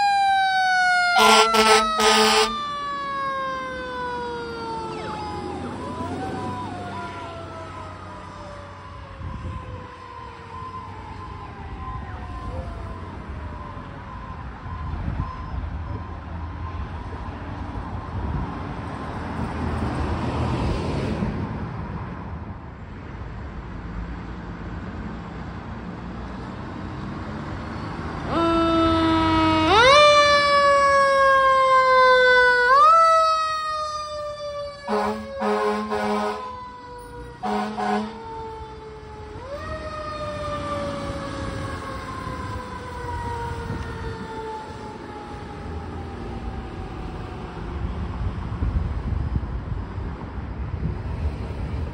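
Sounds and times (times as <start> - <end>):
fire engine siren: 0.0 - 21.2, 27.0 - 50.2
road traffic: 0.0 - 51.9
short horn blasts: 1.2 - 2.6, 34.9 - 36.6, 37.4 - 38.2
car passing: 18.4 - 22.6.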